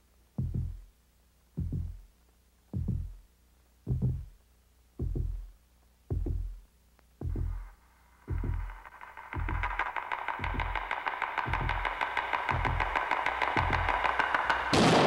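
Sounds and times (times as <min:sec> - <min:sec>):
heartbeat double thump: 0:00.4 - 0:00.9, 0:01.6 - 0:02.0, 0:02.8 - 0:03.2, 0:03.9 - 0:04.3, 0:05.0 - 0:05.5, 0:06.1 - 0:06.6, 0:07.2 - 0:07.7, 0:08.3 - 0:08.8, 0:10.4 - 0:10.9, 0:11.5 - 0:11.9.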